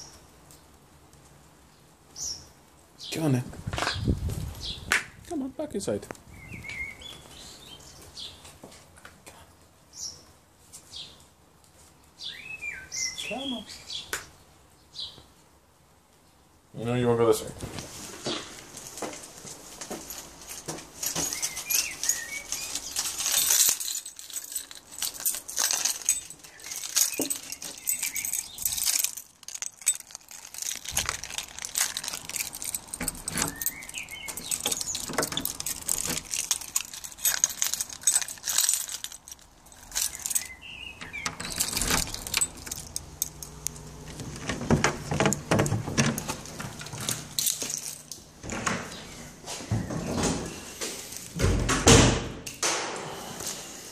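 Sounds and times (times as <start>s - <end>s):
small metal pieces jingling: 20.1s - 48.2s.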